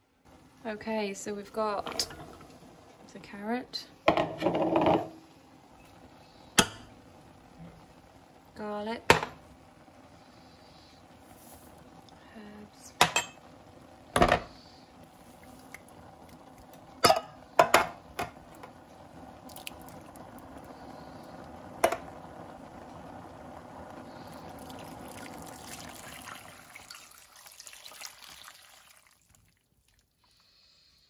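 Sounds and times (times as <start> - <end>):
cans knocking on metal pot: 4.1 - 5.2, 17.0 - 18.4, 21.8 - 22.1
wet pouring and sloshing: 19.5 - 20.2, 24.5 - 30.3.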